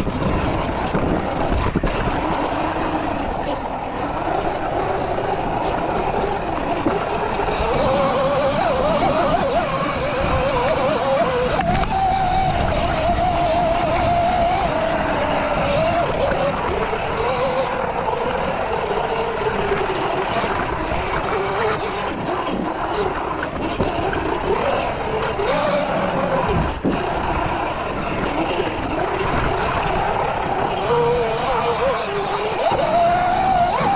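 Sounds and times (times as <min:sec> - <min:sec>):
electric motor whine: 0:00.0 - 0:33.9.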